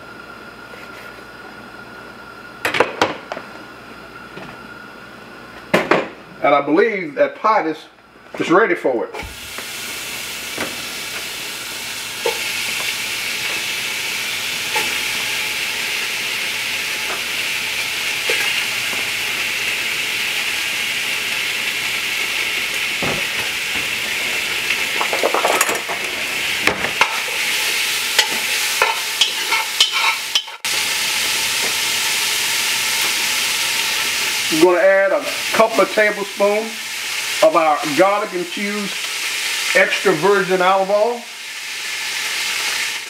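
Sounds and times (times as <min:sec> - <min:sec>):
bacon sizzling in a pot: 0:09.2 - 0:43.0.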